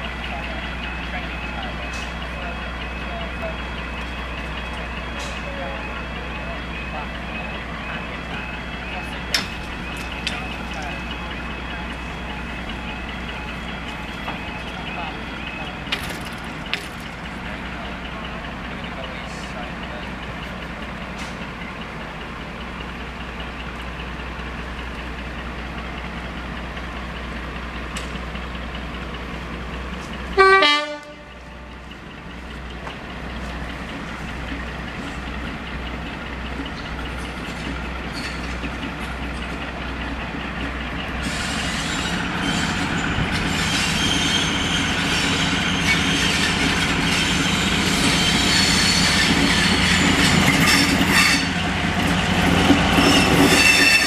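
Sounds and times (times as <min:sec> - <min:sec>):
diesel locomotive engine drone: 0:00.0 - 0:54.0
two-tone train horn: 0:30.4 - 0:31.7, 0:50.6 - 0:51.6.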